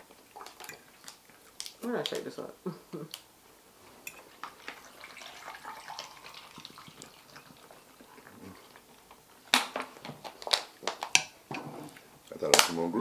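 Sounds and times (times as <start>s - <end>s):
chewing and mouth smacks: 0.0s - 2.3s, 4.1s - 11.2s.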